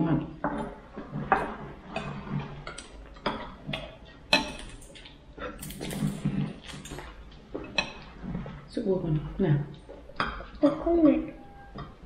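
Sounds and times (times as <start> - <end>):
spoons and dishes clinking: 4.3 - 8.0.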